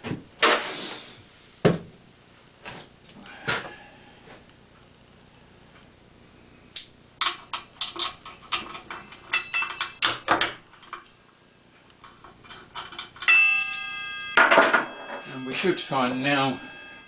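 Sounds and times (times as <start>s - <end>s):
metal bolts and tools clattering: 7.2s - 11.2s, 12.0s - 15.9s.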